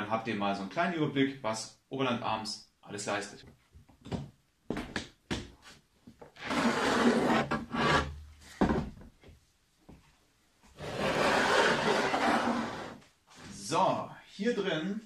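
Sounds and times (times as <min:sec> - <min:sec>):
plastic scraping against table: 0:06.3 - 0:08.2, 0:10.8 - 0:13.0.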